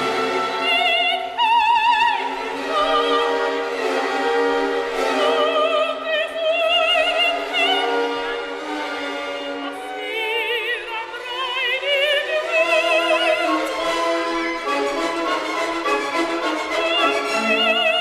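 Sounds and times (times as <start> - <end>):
orchestra playing: 0.0 - 18.0
operatic voice singing: 0.5 - 3.6, 9.2 - 14.0, 16.1 - 18.0.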